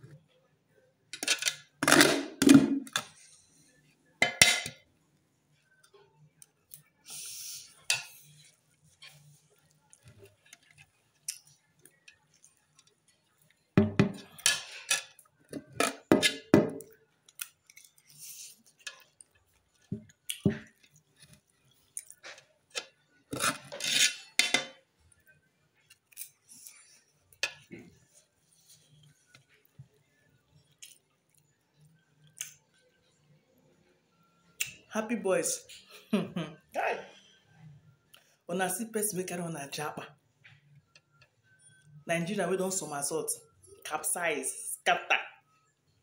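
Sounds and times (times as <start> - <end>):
metal spoon scraping pot: 14.1 - 16.5, 22.2 - 24.7
chewing: 16.9 - 22.9.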